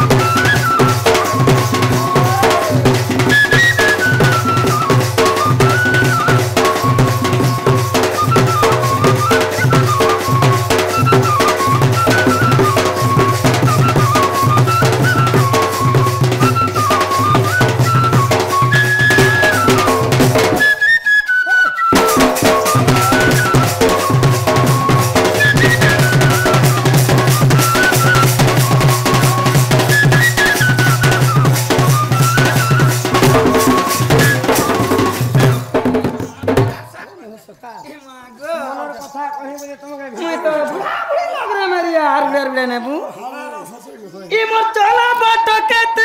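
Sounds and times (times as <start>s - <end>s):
bamboo flute melody: 0.0s - 36.3s
hand drum strokes: 21.9s - 37.0s.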